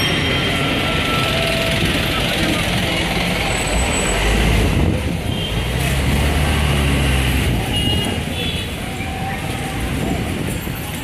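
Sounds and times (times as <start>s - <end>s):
general hubbub: 0.0s - 11.0s
street traffic rumble: 0.0s - 11.0s.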